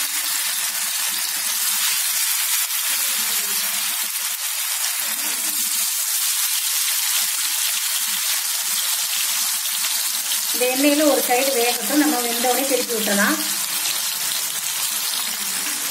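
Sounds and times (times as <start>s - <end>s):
fish sizzling in hot oil: 0.0s - 15.9s.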